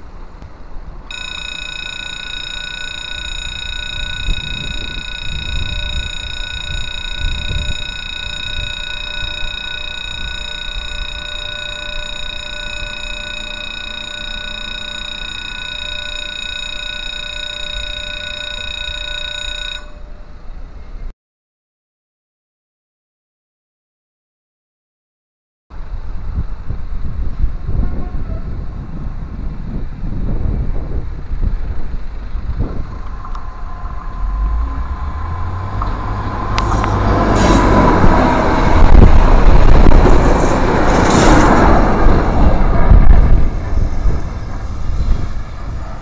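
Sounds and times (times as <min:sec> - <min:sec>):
level crossing alarm ringing: 0:01.1 - 0:20.4, 0:33.1 - 0:45.0
low rumble: 0:26.0 - 0:46.0.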